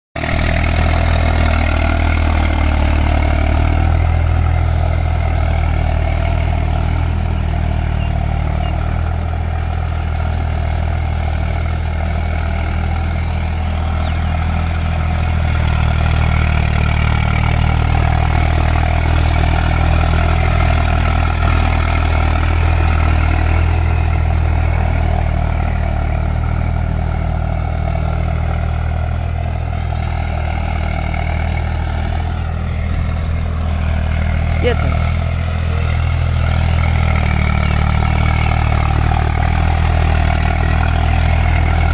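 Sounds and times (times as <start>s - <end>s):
tractor diesel engine droning: 0.2s - 41.9s.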